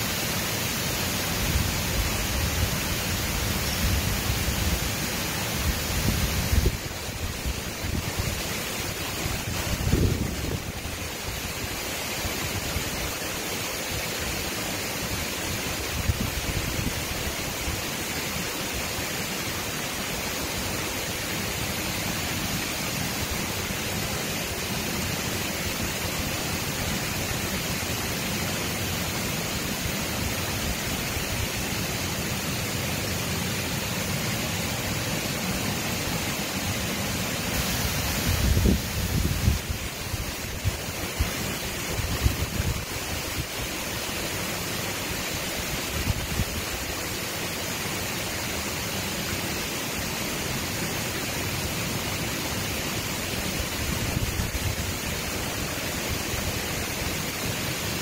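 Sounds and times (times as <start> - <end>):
water rushing over a weir: 0.0 - 58.0
wind buffeting microphone: 38.1 - 40.8.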